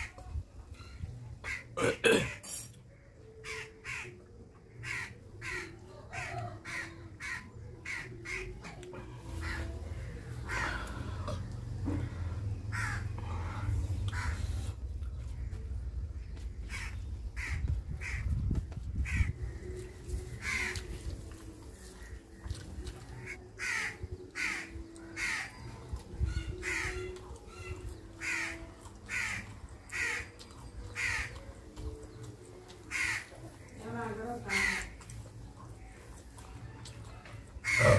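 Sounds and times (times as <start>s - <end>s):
crows cawing: 3.4s - 4.2s, 4.8s - 8.5s, 9.4s - 13.2s, 14.1s - 14.4s, 16.7s - 18.2s, 20.4s - 20.9s, 23.2s - 25.7s, 26.5s - 27.2s, 28.2s - 30.4s, 31.0s - 31.4s, 32.9s - 33.8s, 34.5s - 35.1s, 37.6s - 37.9s.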